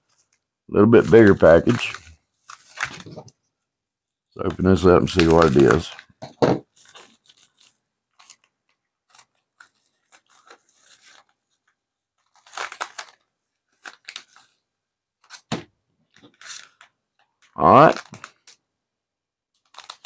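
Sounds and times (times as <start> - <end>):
package being torn open: 5.0 - 6.0, 12.2 - 14.6, 16.3 - 17.0, 17.8 - 18.6, 19.6 - 20.0.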